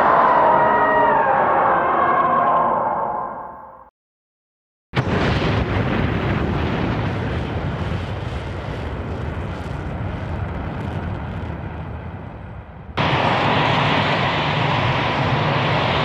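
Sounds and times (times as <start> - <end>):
jet thrust roar: 6.2 - 16.0.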